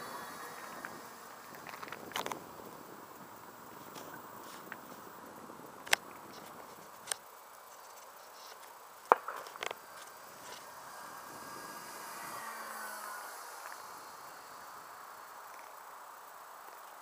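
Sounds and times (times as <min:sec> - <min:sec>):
model aeroplane motor drone: 0:00.0 - 0:17.0.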